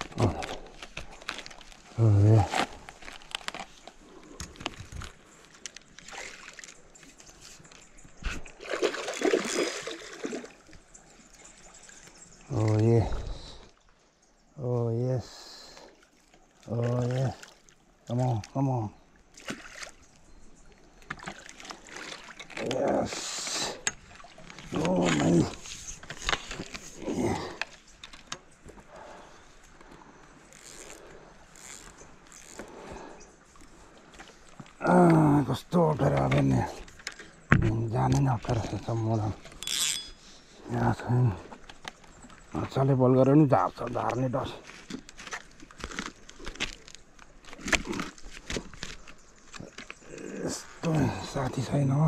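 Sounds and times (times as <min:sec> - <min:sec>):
fishing gear clicks and scrapes: 0:00.0 - 0:08.6, 0:21.0 - 0:32.9, 0:38.0 - 0:40.3, 0:43.8 - 0:50.9
river water splashing around log: 0:05.9 - 0:07.4, 0:08.3 - 0:12.8, 0:15.8 - 0:18.3, 0:19.1 - 0:27.6.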